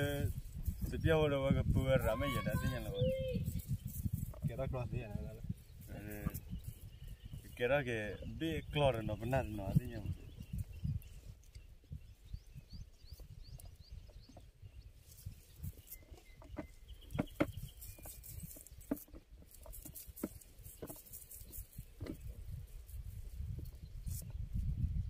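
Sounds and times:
faint high bird chirps: 0:05.8 - 0:18.7
fishing net rustling and clicking: 0:15.9 - 0:22.3.

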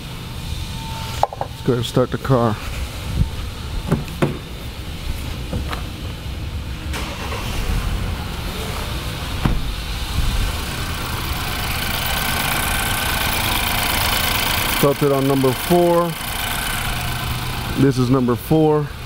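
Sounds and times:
car engine idling roughly: 0:08.2 - 0:18.2.

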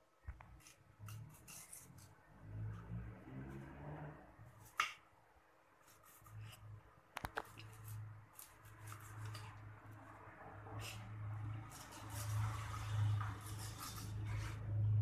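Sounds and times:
soft cutting sounds: 0:00.3 - 0:04.9, 0:05.8 - 0:10.1, 0:10.7 - 0:14.8.

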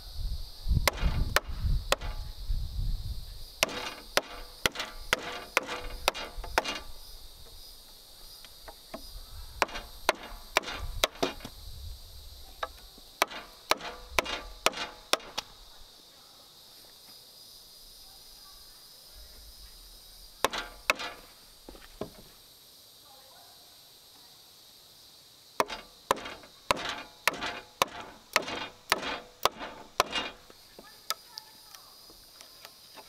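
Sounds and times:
insects buzzing: 0:00.0 - 0:33.0
tool striking wood: 0:00.8 - 0:02.3, 0:03.6 - 0:07.0, 0:08.7 - 0:11.5, 0:12.6 - 0:15.5, 0:20.4 - 0:21.3, 0:25.6 - 0:30.5.

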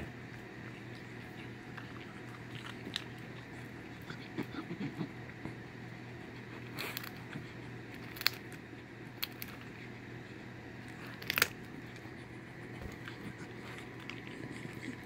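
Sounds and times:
dog cracking peanut shells: 0:06.7 - 0:09.8, 0:10.9 - 0:12.1.

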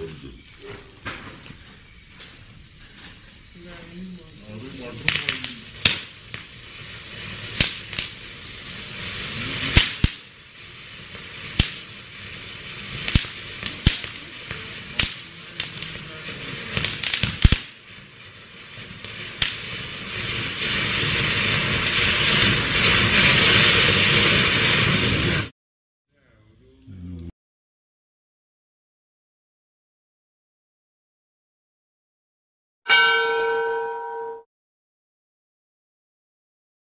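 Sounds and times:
firework fountain hissing: 0:00.0 - 0:25.5
firework sharp cracks: 0:03.6 - 0:25.5.

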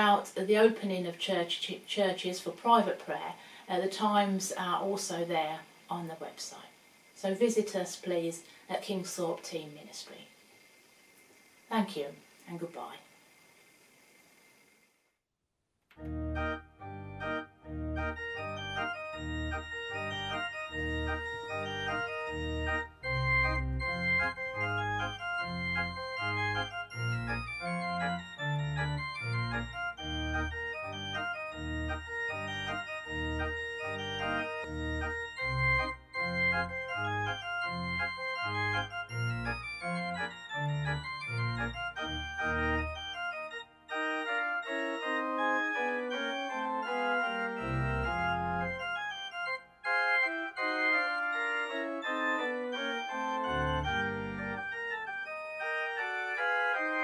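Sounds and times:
organ music: 0:16.0 - 0:57.0.

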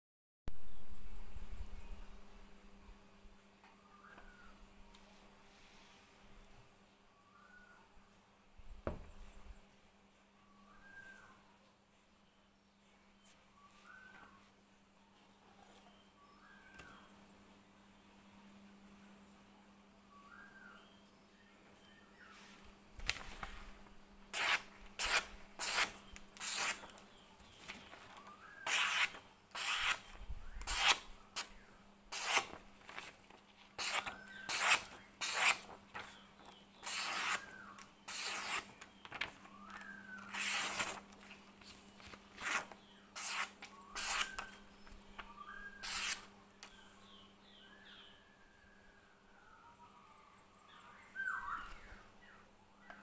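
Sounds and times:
blade slicing paper: 0:24.3 - 0:27.0, 0:27.6 - 0:46.3.

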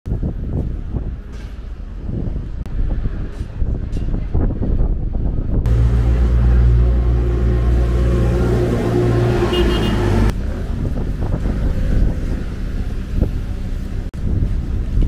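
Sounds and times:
city traffic noise: 0:00.0 - 0:15.0
vehicle engine running: 0:05.7 - 0:15.0.

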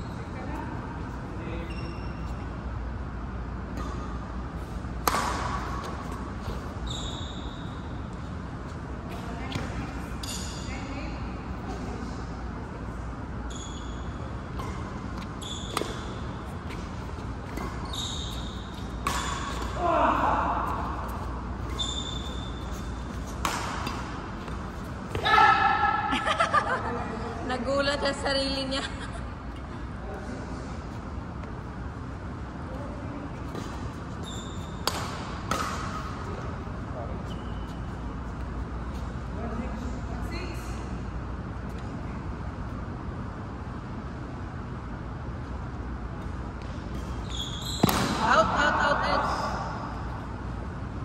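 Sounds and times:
shoes squeaking on court: 0:00.0 - 0:02.7, 0:03.7 - 0:10.8, 0:13.4 - 0:25.4, 0:33.3 - 0:39.3, 0:46.1 - 0:48.3
low hum of hall: 0:00.0 - 0:51.0
racket hitting shuttlecock: 0:03.7 - 0:06.8, 0:14.5 - 0:26.1, 0:34.7 - 0:36.2, 0:47.8 - 0:48.3.

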